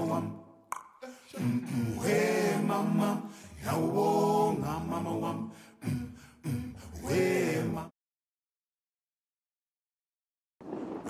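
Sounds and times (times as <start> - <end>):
unaccompanied voices singing: 0.0 - 7.9.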